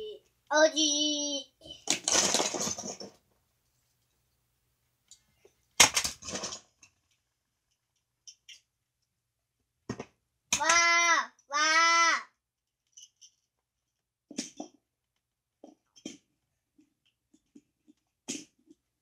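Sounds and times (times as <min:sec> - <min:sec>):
toy cars clattering in plastic bin: 0:01.8 - 0:03.2, 0:05.8 - 0:06.8.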